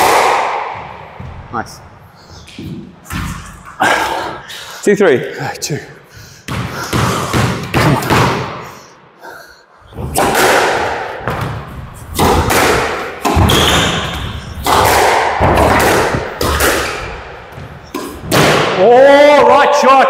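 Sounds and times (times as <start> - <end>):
squash ball hit by rackets: 0.0 - 1.3, 6.5 - 8.6, 10.0 - 18.8
ball thudding off court walls: 10.0 - 18.8.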